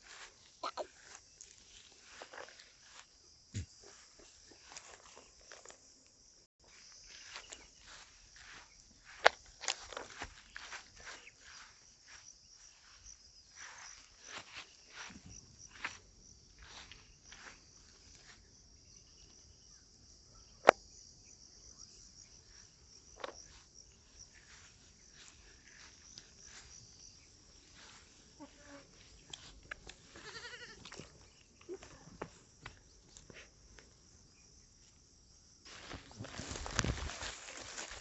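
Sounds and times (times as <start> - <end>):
high insect drone: 0.0 - 38.0
goat bleating: 30.1 - 30.9.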